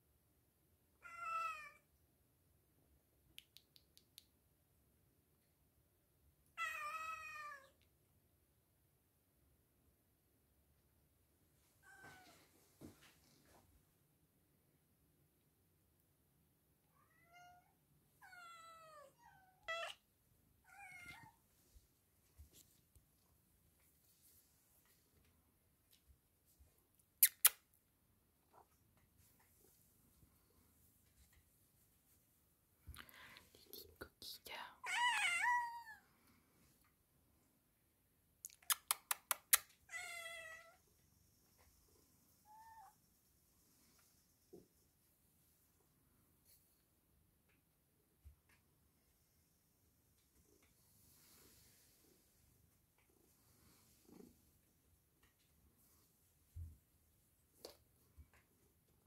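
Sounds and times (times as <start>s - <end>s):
cat meowing: 1.0s - 1.8s, 6.6s - 7.8s, 17.0s - 20.0s, 20.6s - 21.4s, 34.8s - 36.0s, 39.9s - 40.8s.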